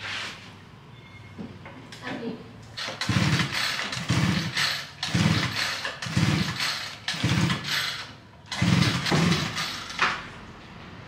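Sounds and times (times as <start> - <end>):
motorbike engine cranking: 2.8 - 10.0.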